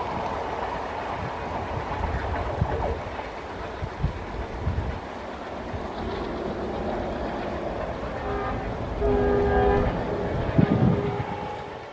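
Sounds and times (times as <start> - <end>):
train horn chord: 8.1 - 11.9.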